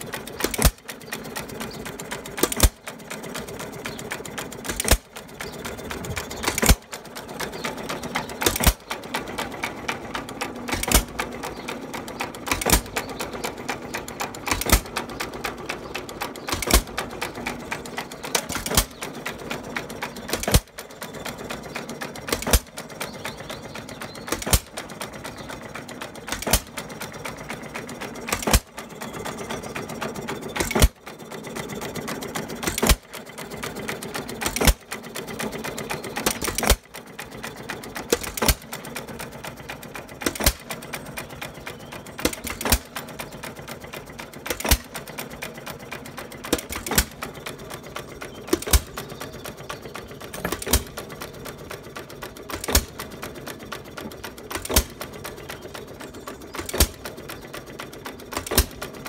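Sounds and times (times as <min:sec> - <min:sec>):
engine exhaust bangs: 0:00.0 - 0:29.7, 0:40.0 - 0:53.4
light mechanical clatter: 0:00.0 - 0:59.0.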